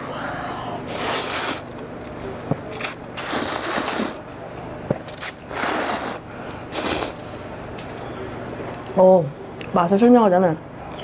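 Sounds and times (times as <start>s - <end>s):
person slurping noodles: 0.9s - 1.7s, 2.8s - 4.2s, 5.1s - 7.2s.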